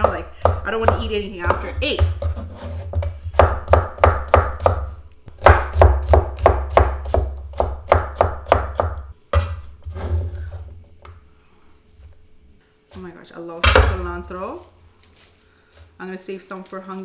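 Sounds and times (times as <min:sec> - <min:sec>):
knife chopping on wooden board: 0:00.0 - 0:10.1.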